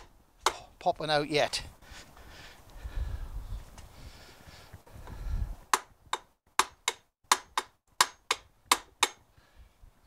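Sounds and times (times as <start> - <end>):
hammer tapping steel shaft: 5.7 - 9.2.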